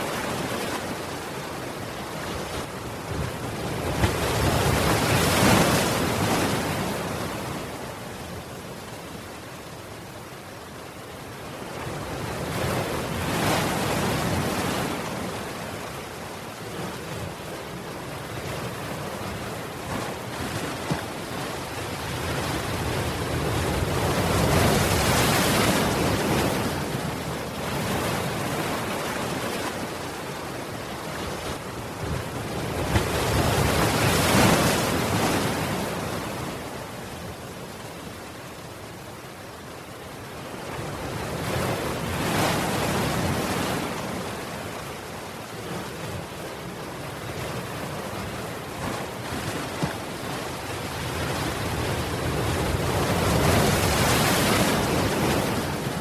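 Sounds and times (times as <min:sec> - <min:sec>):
waves breaking over seawall: 0:40.7 - 0:56.0.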